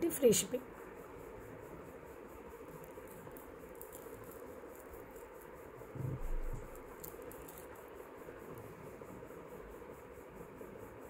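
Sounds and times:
background hum and hiss: 0.0s - 11.0s
soft low thump: 5.9s - 6.7s.

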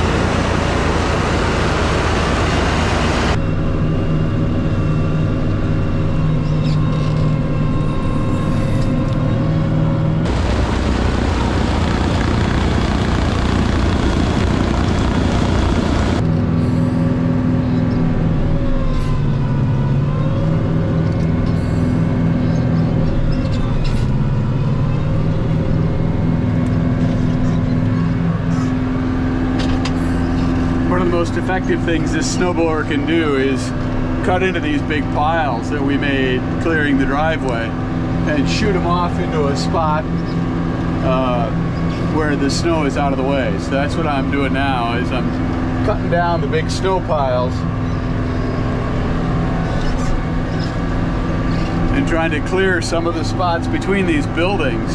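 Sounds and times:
snowblower rushing noise: 0.0s - 3.4s, 10.2s - 17.0s, 30.2s - 54.9s
tractor engine drone: 0.0s - 54.9s.

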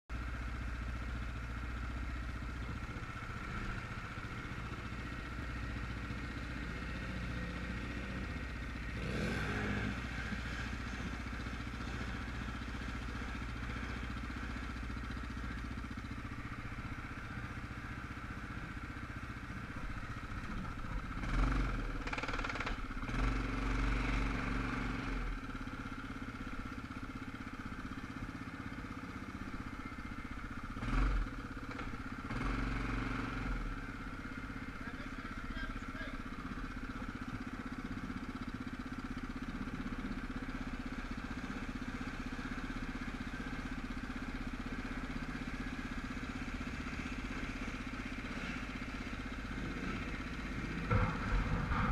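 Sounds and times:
atv engine revving in water: 8.9s - 11.0s, 21.2s - 25.2s, 30.8s - 33.7s, 49.6s - 51.9s.

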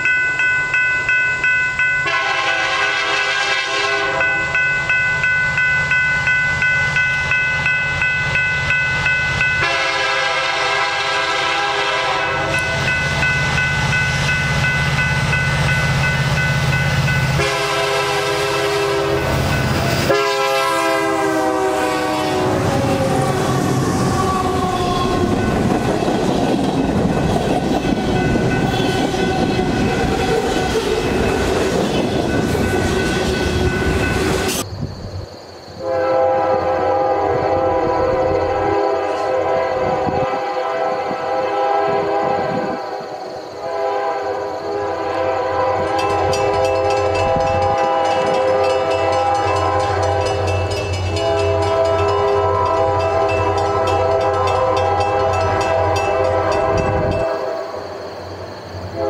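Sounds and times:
crossing bell ringing: 0.0s - 21.6s, 24.2s - 34.7s, 45.7s - 57.6s
train wheel and rail noise: 0.0s - 59.0s
locomotive air horn blasts: 2.0s - 4.4s, 9.6s - 12.9s, 17.3s - 24.9s, 35.8s - 42.8s, 43.6s - 57.8s.

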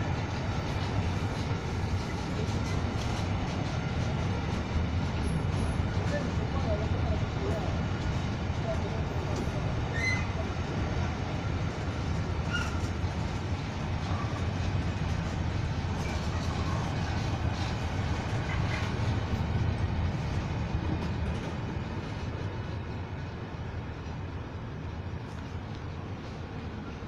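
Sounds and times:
train wheels rumbling on rail: 0.0s - 27.0s
wheels squeaking: 12.4s - 13.0s.

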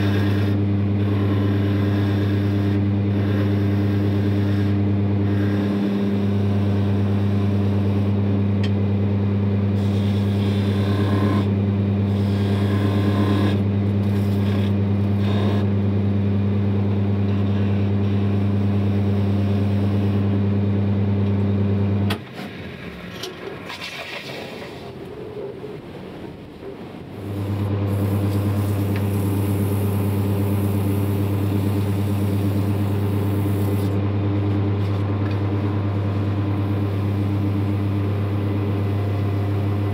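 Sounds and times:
gouge cutting spinning wood: 0.0s - 8.4s, 9.7s - 15.8s, 27.2s - 34.0s
wood lathe motor hum: 0.0s - 22.0s, 27.1s - 39.9s.

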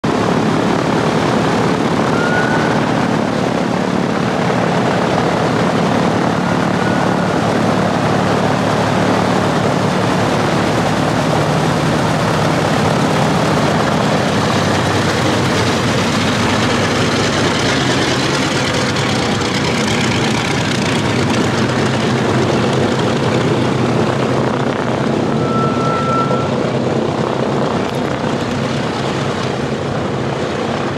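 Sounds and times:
propeller aircraft engine drone: 0.0s - 30.9s
high-pitched brake whines: 2.1s - 3.0s, 25.3s - 26.6s.

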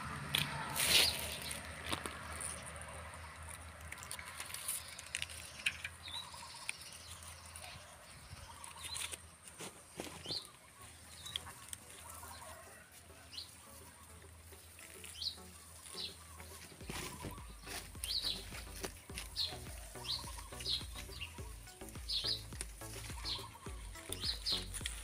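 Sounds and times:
leaves rustling: 0.0s - 25.0s
high bird chirps: 15.0s - 25.0s.

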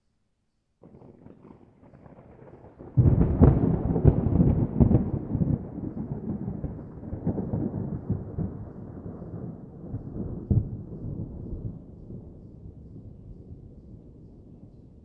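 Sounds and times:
fireworks rumble: 0.8s - 9.8s.

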